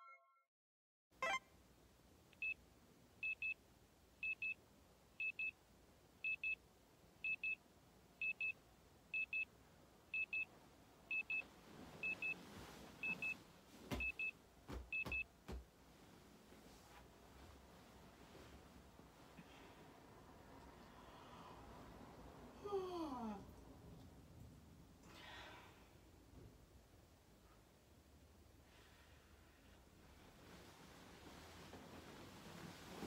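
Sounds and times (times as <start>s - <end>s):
bedding rustling: 11.4s - 19.9s, 30.0s - 33.0s.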